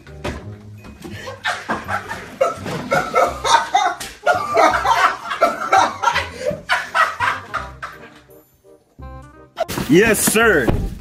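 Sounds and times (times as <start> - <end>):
young men laughing loudly: 1.2 - 8.2.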